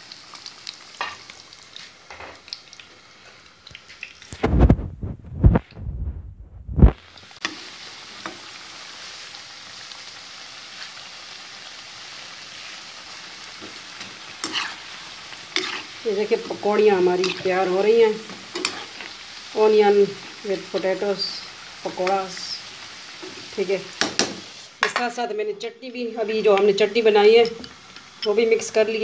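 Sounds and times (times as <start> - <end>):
deep-frying sizzle in oil: 0.0 - 5.6, 6.7 - 29.0
low thumps and rumbling: 4.4 - 7.0.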